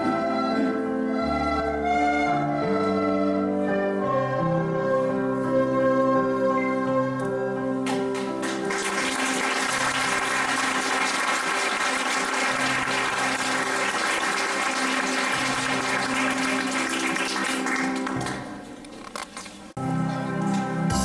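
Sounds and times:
audience applauding: 7.8s - 18.6s.

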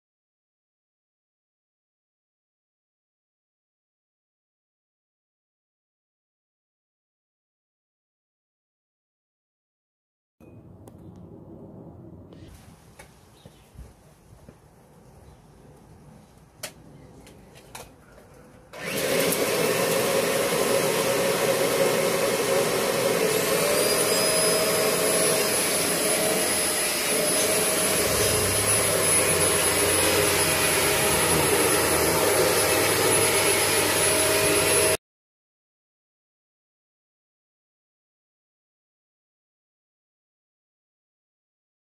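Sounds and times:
vacuum cleaner running: 18.7s - 35.0s.

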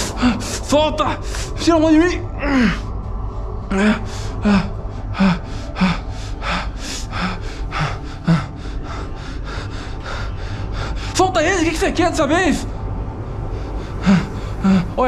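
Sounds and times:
man panting: 0.0s - 1.6s, 3.7s - 11.2s, 13.8s - 15.0s.

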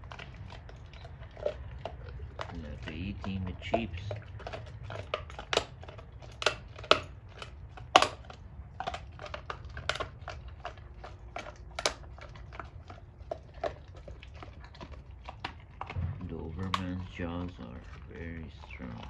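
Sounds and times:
dog chewing a bone: 0.0s - 19.0s.

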